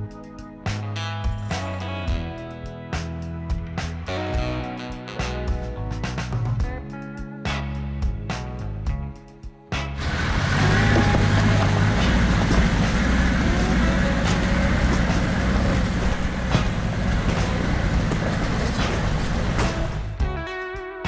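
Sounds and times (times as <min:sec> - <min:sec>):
car engine running: 0:10.0 - 0:20.2.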